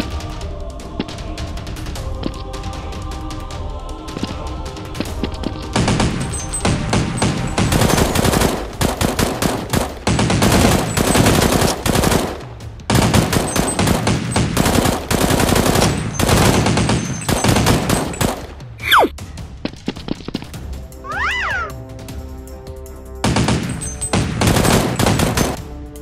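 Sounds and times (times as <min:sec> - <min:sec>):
automatic gunfire bursts: 0:05.8 - 0:18.5, 0:23.3 - 0:25.6.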